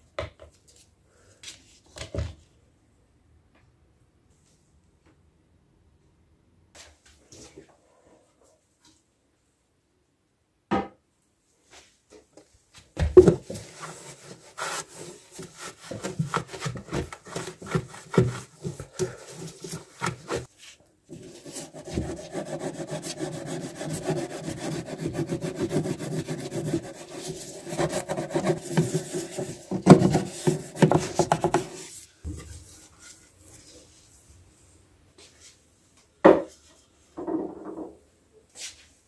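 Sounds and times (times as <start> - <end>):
toothbrush scrubbing floor: 13.3 - 34.1.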